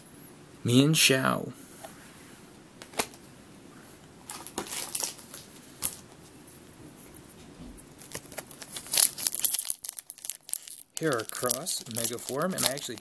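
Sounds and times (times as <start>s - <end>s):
foil wrapper crinkling: 4.3s - 6.0s, 8.0s - 13.0s
cards clicking and rustling: 8.0s - 13.0s.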